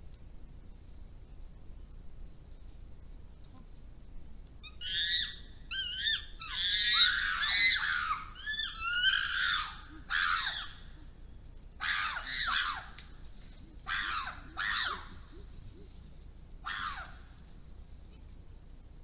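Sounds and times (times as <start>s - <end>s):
chimpanzees screaming: 4.6s - 11.1s, 11.8s - 13.0s, 13.6s - 15.9s, 16.6s - 17.3s.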